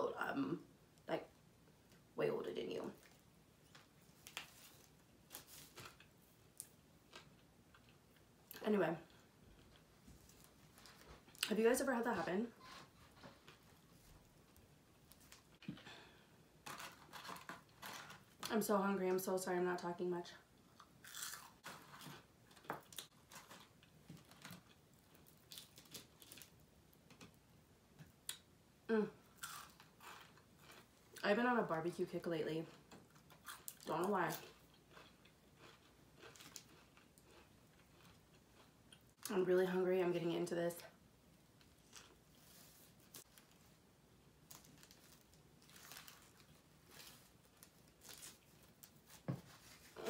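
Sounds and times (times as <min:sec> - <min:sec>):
quiet chewing: 0:32.7 - 0:39.3
paper packaging crinkling: 0:44.5 - 0:50.0.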